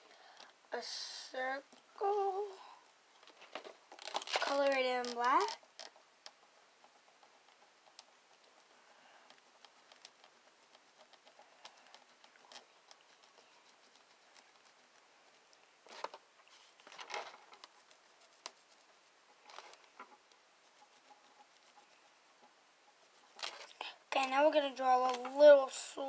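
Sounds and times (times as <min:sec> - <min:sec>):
pen scratching on foam: 0:07.2 - 0:15.0, 0:17.5 - 0:23.7.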